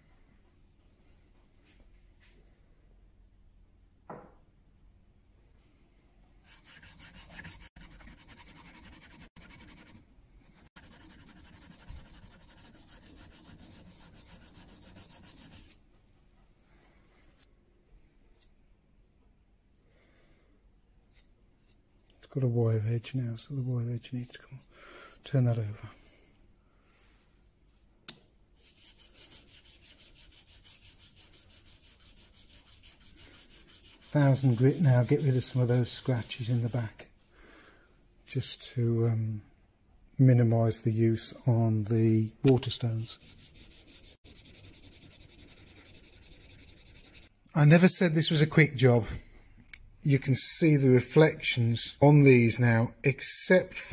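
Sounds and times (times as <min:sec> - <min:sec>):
short knock: 0:04.1 - 0:04.4
chisel rasping on sharpening plate: 0:06.5 - 0:10.0.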